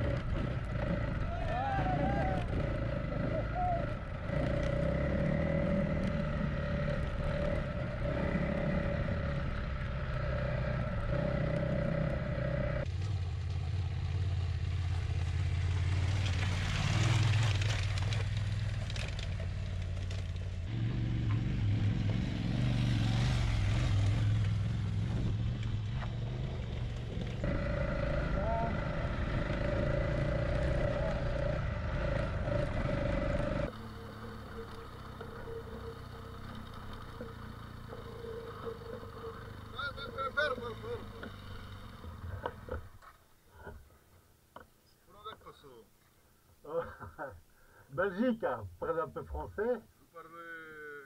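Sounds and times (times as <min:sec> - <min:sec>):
motorcycle engine drone with whine: 0:00.0 - 0:43.0
motorcycle passing close: 0:00.0 - 0:43.2
tyres on loose gravel: 0:12.9 - 0:20.7.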